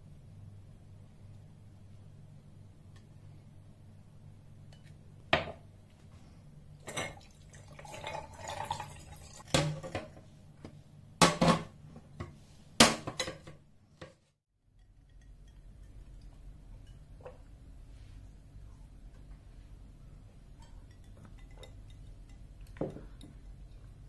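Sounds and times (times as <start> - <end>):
chopsticks clinking against glass jar: 20.6 - 22.8.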